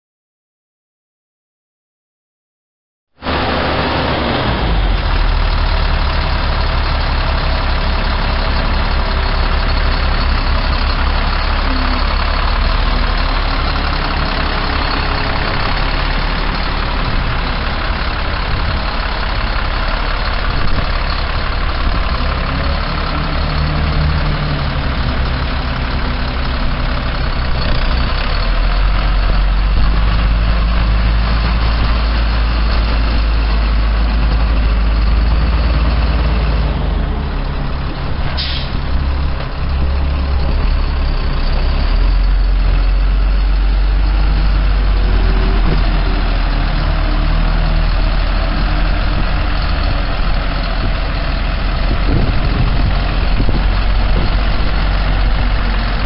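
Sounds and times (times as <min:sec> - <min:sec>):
diesel truck engine idling: 0:03.2 - 0:56.0.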